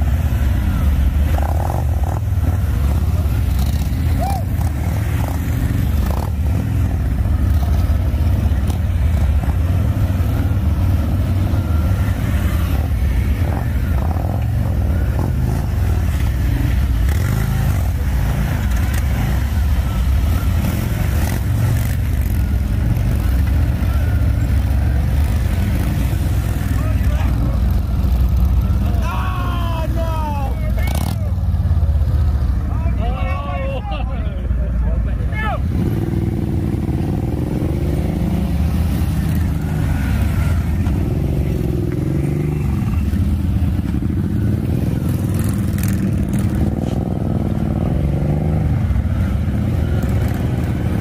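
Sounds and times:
motorcycle engines idling: 0.0s - 51.0s.

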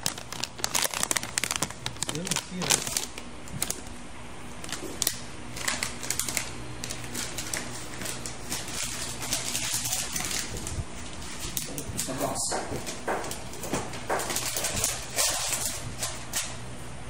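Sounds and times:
plastic packaging crinkling: 0.0s - 16.6s.

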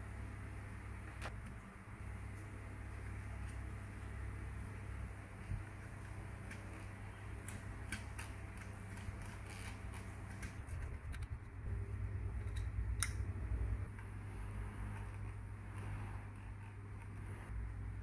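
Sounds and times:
steady low hum: 0.0s - 18.0s
low rumble: 10.6s - 15.4s.

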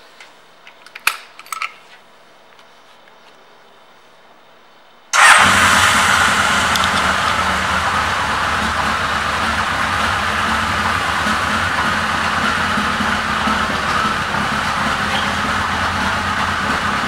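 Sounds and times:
motorcycle engine starting and idling: 5.2s - 17.0s.

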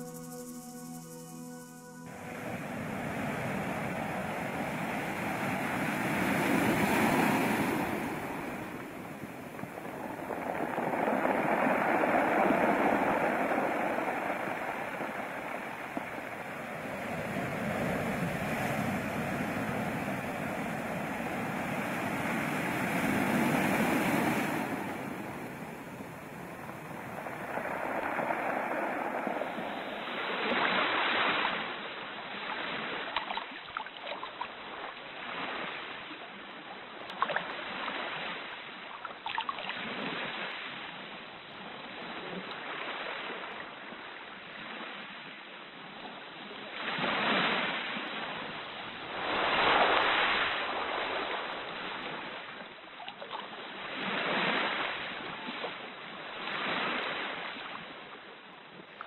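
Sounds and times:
rushing water: 2.1s - 36.3s.

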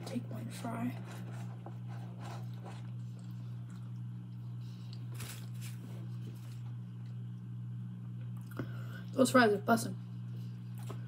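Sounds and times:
steady low hum: 0.0s - 11.0s
soft chewing: 1.0s - 8.8s
paper wrapper rustling: 5.1s - 6.6s.

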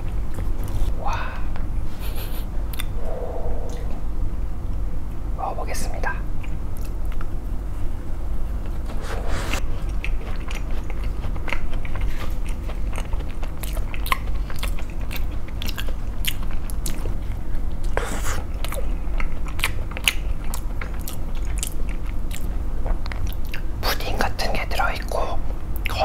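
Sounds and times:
chewing crunchy pastry: 8.5s - 26.0s.

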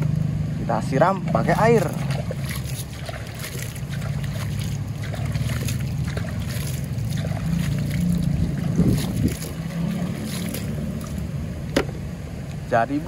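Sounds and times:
wind rumble on microphone: 0.0s - 12.2s
water sloshing in plastic toy: 1.2s - 11.4s.

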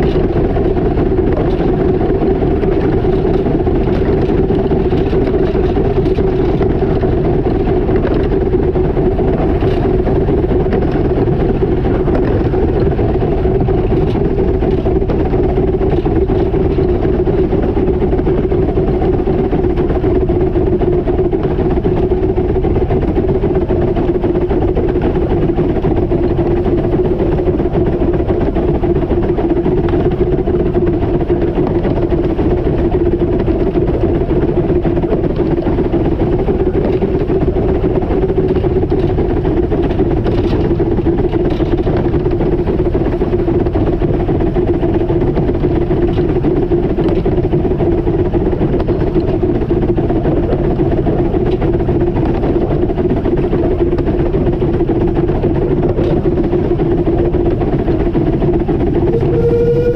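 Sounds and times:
steam locomotive rumbling: 0.0s - 59.9s.

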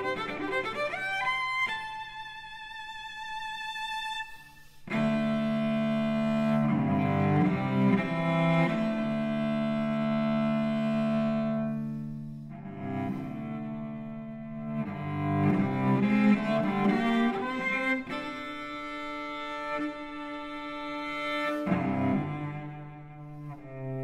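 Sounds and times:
bowed cello: 0.0s - 24.0s.

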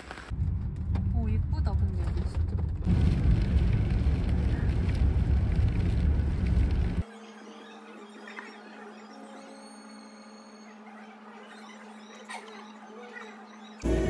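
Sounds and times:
rain on car: 0.0s - 7.0s
road rumble in car: 0.2s - 7.0s.

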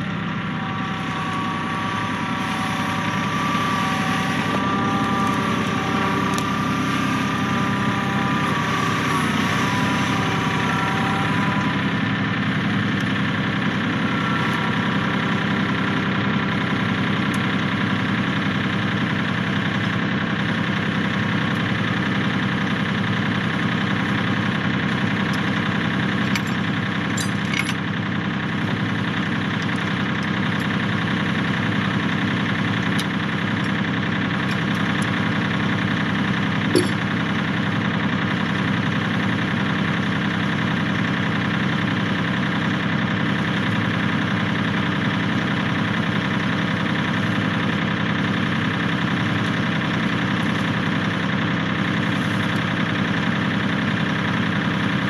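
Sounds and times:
tractor diesel engine idling: 0.0s - 55.0s
faint clinks: 26.2s - 27.8s, 36.7s - 37.0s.

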